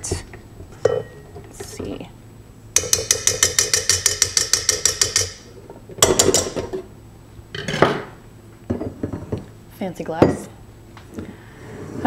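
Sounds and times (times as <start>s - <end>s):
spatula tapping metal bowl: 2.8s - 5.4s.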